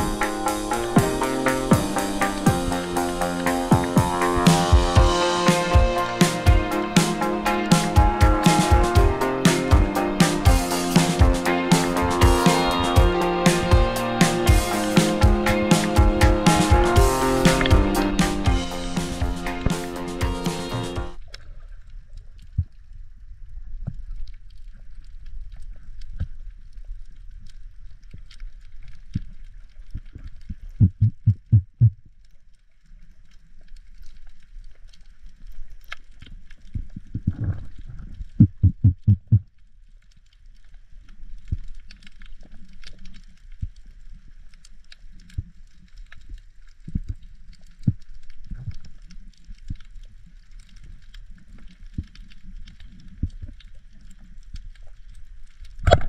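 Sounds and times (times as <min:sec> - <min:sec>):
muffled underwater rush: 0:00.0 - 0:24.2
loud low thumps: 0:03.6 - 0:21.2
faint crackling and clicks: 0:21.1 - 0:56.0.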